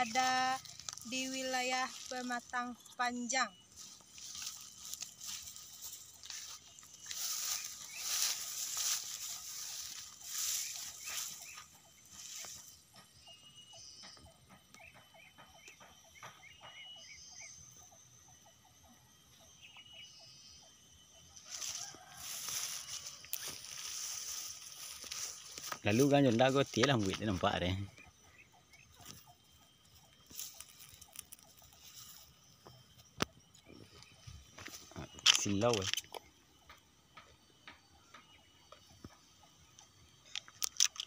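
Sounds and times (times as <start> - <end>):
rustling noise: 3.8 - 12.7, 21.5 - 27.4.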